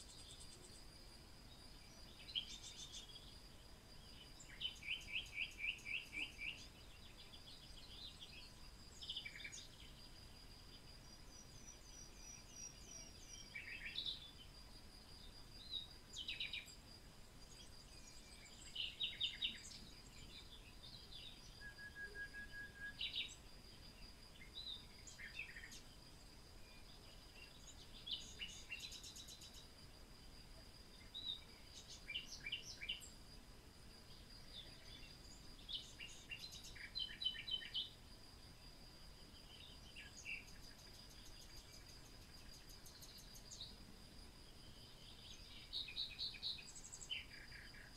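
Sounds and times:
birds chirping and trilling: 1.6s - 3.4s, 4.0s - 10.1s, 10.7s - 14.5s, 17.4s - 23.5s, 24.4s - 29.7s, 31.0s - 33.2s, 34.0s - 38.0s, 39.4s - 43.8s.

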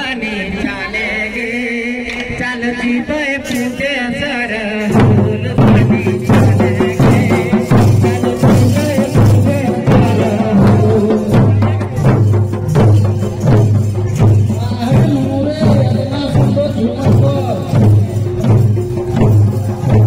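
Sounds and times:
men singing folk song: 0.0s - 12.0s
hand drum: 4.9s - 20.0s
heavy deep drum strokes: 4.9s - 20.0s.

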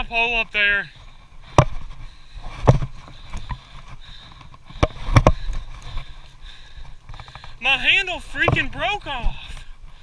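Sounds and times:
footsteps on loose shale: 0.0s - 10.0s.

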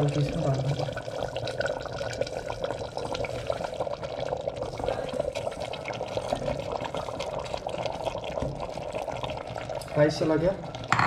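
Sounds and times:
bubbling crackle in pot: 0.0s - 11.0s.

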